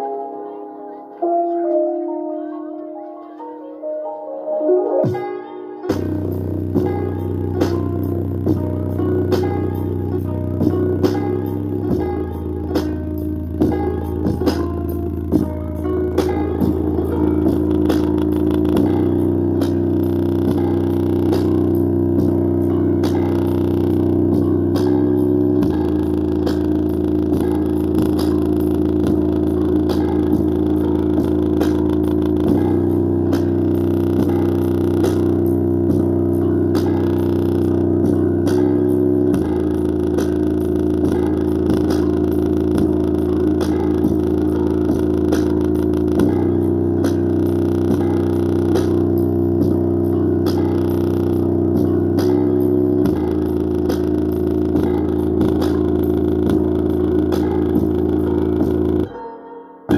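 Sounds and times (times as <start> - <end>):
bass-heavy music from speaker: 5.0 - 59.2.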